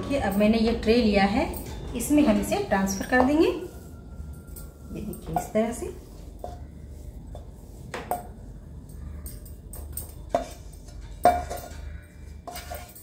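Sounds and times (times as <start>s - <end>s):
metallic ring: 0.1s - 5.8s.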